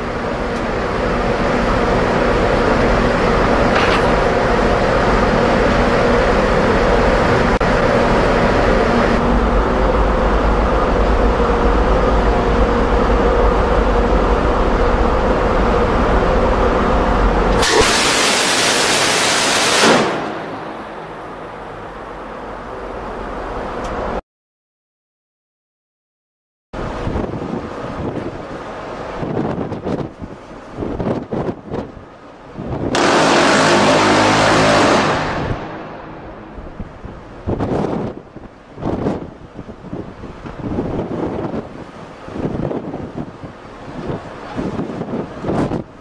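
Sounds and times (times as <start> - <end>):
ship mechanical rumble: 0.0 - 24.2, 26.8 - 46.0
wind on microphone: 26.8 - 33.0, 36.4 - 46.0.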